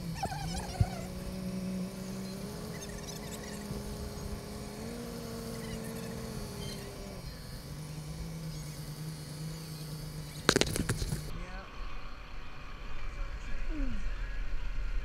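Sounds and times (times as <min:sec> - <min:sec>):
boat engine humming: 0:00.0 - 0:11.3.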